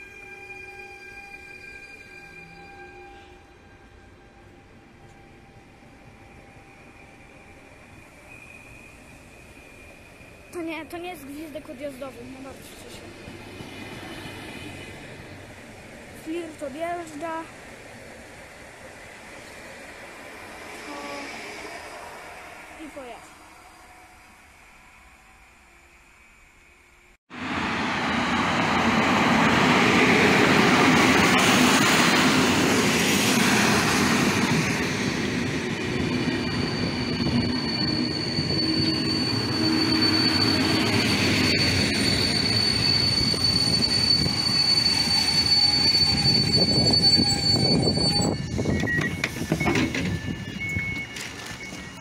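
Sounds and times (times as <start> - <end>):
high brake squeal: 0.0 - 4.0, 6.6 - 11.8, 33.2 - 52.0
rumble of passing train coaches: 0.0 - 52.0.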